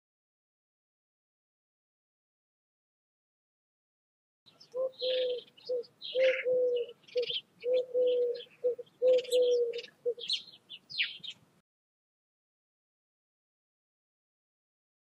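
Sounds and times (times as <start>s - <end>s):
songbirds chirping: 4.5s - 11.6s
dove cooing: 4.7s - 10.4s.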